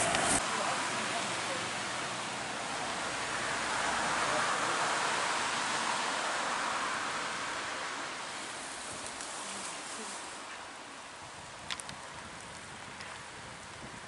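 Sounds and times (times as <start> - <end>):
rain falling on water: 0.0 - 14.0.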